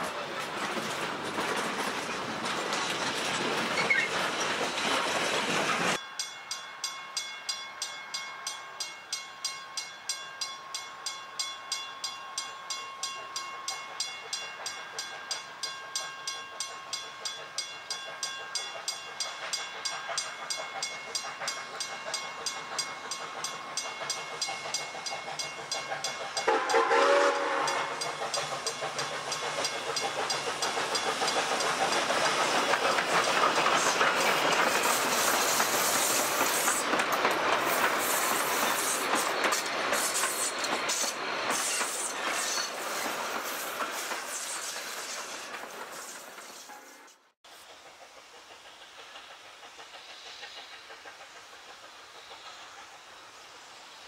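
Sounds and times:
steam locomotive chuffing: 0.0 - 6.0, 11.9 - 54.0
train carriages passing: 0.0 - 54.0
steam whistle blast: 26.5 - 28.0.

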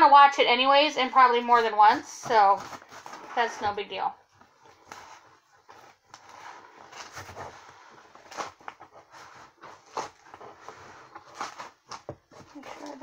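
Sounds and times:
cardboard scraping and crackling: 1.5 - 13.0
cardboard ripping: 6.1 - 13.0.

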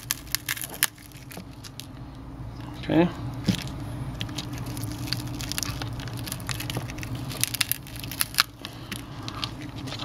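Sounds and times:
cracked glass crackling and clicking: 0.0 - 1.9, 4.2 - 8.5.

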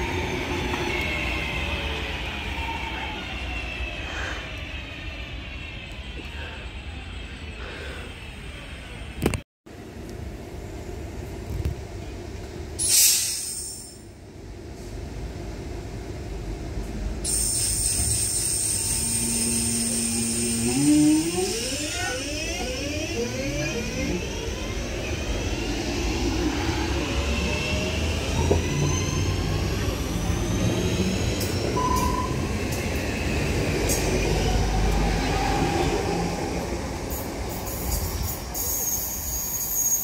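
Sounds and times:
traction motors whining: 17.3 - 40.0.

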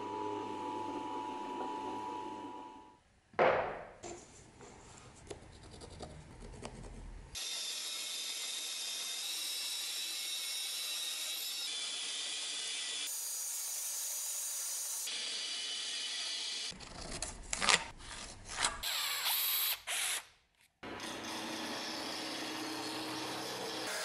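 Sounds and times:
bandsaw cutting wood: 20.8 - 24.0.

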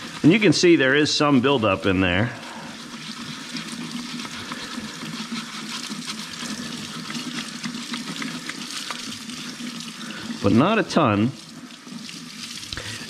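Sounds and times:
toothbrush scrubbing plastic: 0.0 - 13.0
tap water splashing: 2.9 - 13.0.

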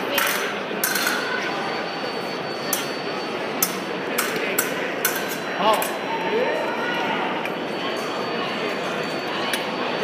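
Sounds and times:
fencing blades clashing: 0.0 - 1.5, 2.7 - 2.9, 3.5 - 6.0
murmur of crowd: 0.0 - 10.0.

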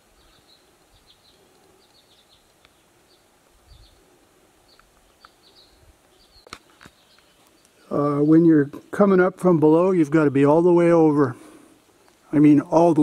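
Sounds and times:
distant bird chirping: 0.0 - 8.9
faint clicks: 1.3 - 2.8, 4.7 - 5.4, 6.0 - 7.8.

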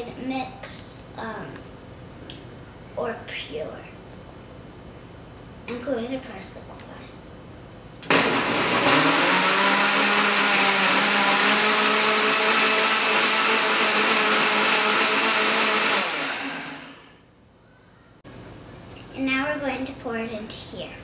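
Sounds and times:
blender motor running: 8.0 - 17.2.

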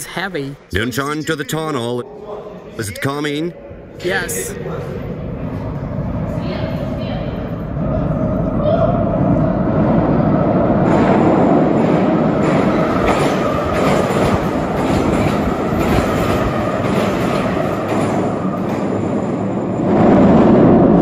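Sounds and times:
train wheels rushing on rails: 4.8 - 21.0.

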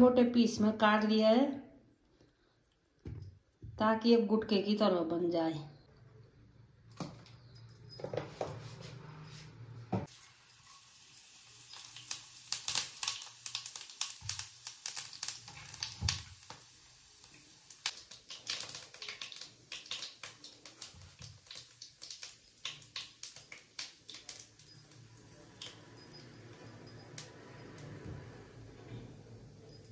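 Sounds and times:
seeds crackling in hot oil: 10.1 - 27.9
oil sizzling: 10.1 - 28.7.

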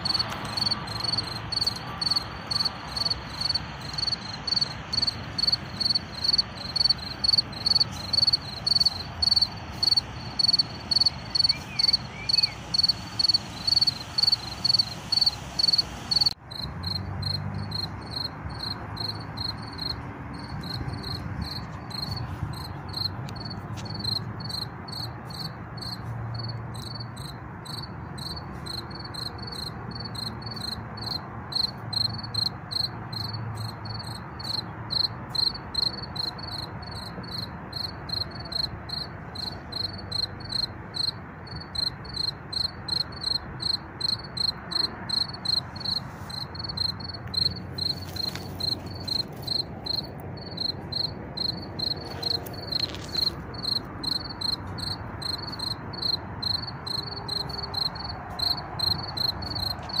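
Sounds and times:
cricket chirping: 0.0 - 60.0
distant traffic: 0.0 - 60.0
wind noise: 3.9 - 25.2.

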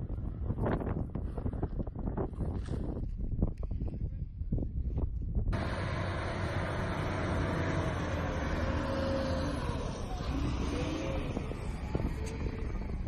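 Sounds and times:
diesel engine running: 5.5 - 13.0.

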